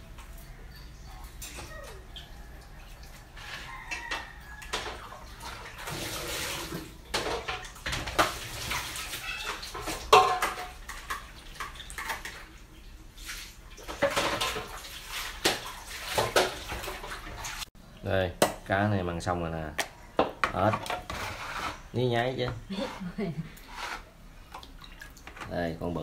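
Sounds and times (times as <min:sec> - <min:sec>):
plastic basins knocking: 0:03.8 - 0:12.5, 0:13.8 - 0:17.6, 0:19.7 - 0:21.4.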